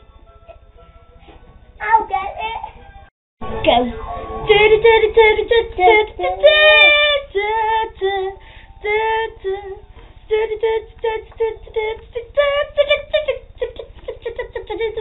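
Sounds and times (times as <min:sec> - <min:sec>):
child singing: 0:04.5 - 0:15.0.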